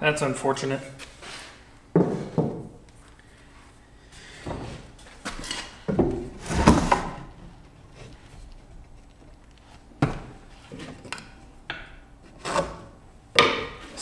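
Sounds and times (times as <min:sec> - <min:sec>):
lumber clunking and scraping: 0:04.4 - 0:09.0, 0:09.8 - 0:14.0.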